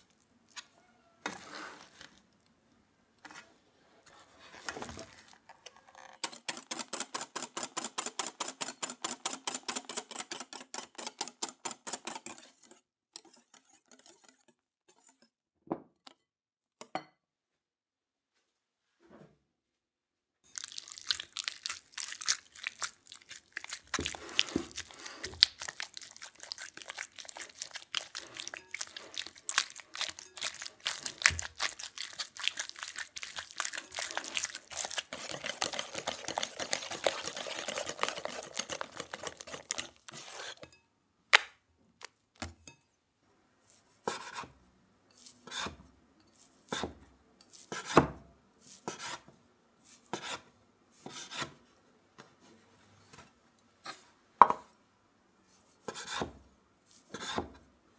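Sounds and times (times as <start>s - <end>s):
whisk scraping a glass bowl: 6.2s - 15.3s, 22.3s - 40.8s
knife sawing through cake: 11.9s - 15.2s, 22.6s - 40.6s.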